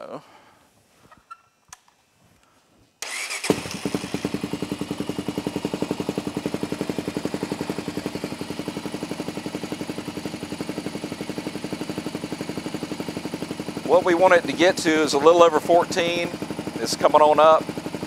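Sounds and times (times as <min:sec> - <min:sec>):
electric starter cranking: 0:03.0 - 0:04.5
engine idling: 0:03.0 - 0:18.0.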